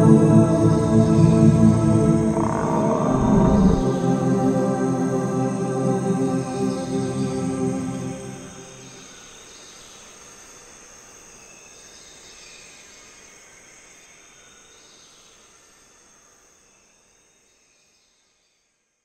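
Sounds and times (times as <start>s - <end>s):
synth music: 1.3s - 4.9s
insects chirring: 2.0s - 4.2s.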